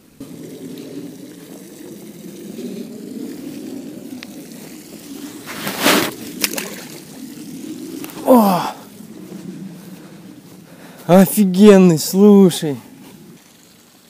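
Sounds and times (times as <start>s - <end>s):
water sloshing: 0.0s - 10.7s
water splash: 4.6s - 8.3s.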